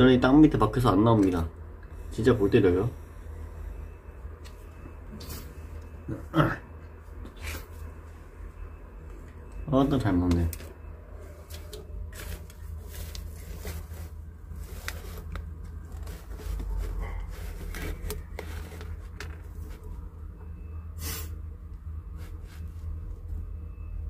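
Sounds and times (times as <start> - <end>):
low steady rumble: 10.5 - 24.0
tortoise chewing with crunches: 11.6 - 19.9.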